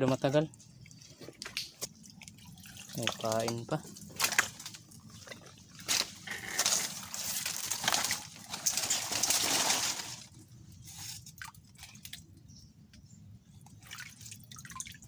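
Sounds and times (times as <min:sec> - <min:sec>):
water dripping: 0:00.5 - 0:05.6, 0:11.3 - 0:15.0
leaves rustling: 0:04.1 - 0:11.2.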